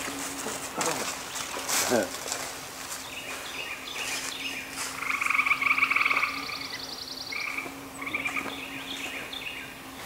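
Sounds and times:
steady low hum: 0.0s - 10.0s
animal pulsed trill: 3.7s - 9.9s.

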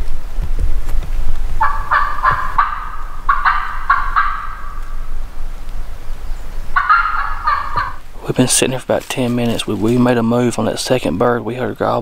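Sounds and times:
turkey call yelps: 1.6s - 5.0s, 6.7s - 8.0s.

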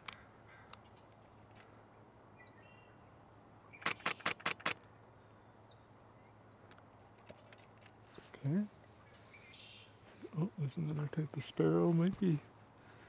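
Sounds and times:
camera shutter burst: 3.8s - 4.8s
faint bird chirps: 5.2s - 13.0s.

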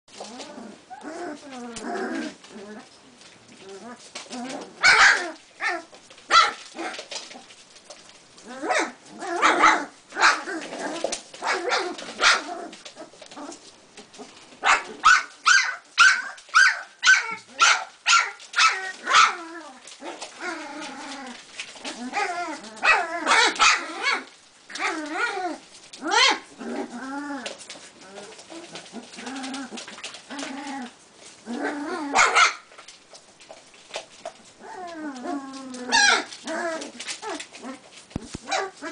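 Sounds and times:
puppies yapping: 14.6s - 30.8s, 31.6s - 32.8s, 34.6s - 38.9s.

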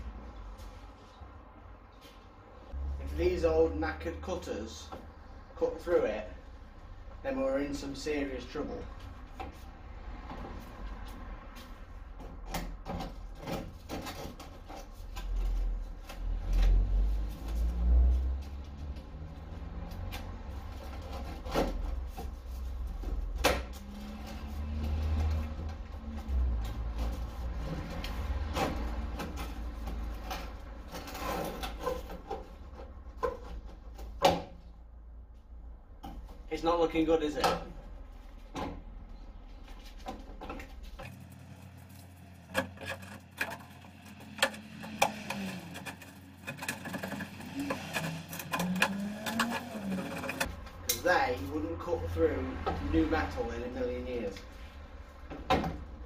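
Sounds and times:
hand cutters crunching sheet steel: 42.4s - 51.1s.

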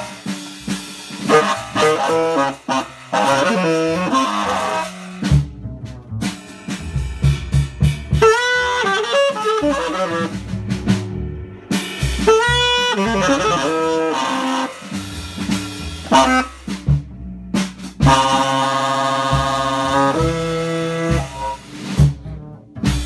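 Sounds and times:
tenor saxophone improvising: 0.0s - 5.4s, 8.1s - 10.6s, 12.2s - 16.9s, 18.0s - 21.8s
drum hits: 0.0s - 23.0s.

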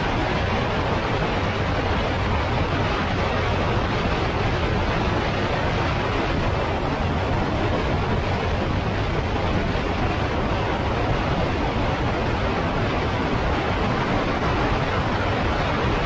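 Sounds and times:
wind rushing on microphone: 0.0s - 16.0s.

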